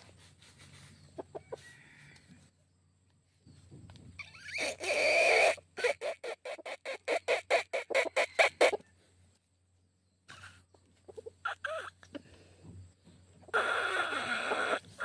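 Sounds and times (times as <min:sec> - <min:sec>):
rooster clucking: 0:01.0 - 0:02.0, 0:04.2 - 0:09.0, 0:10.9 - 0:12.3, 0:13.4 - 0:15.0
rooster calling: 0:13.5 - 0:15.0.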